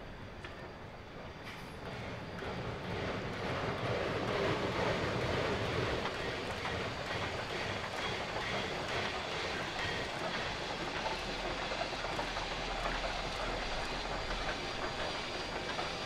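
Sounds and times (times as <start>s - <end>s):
steam locomotive chugging: 0.0s - 16.0s.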